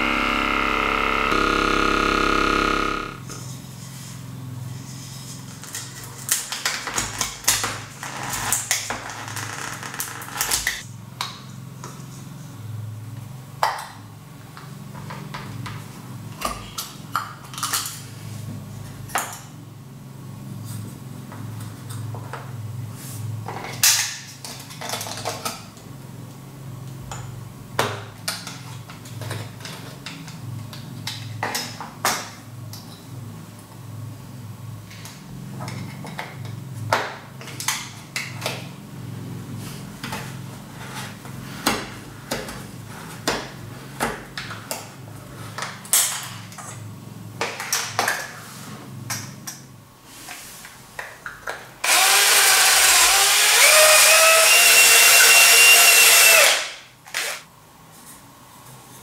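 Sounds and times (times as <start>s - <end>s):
steady low hum: 0.0s - 3.4s.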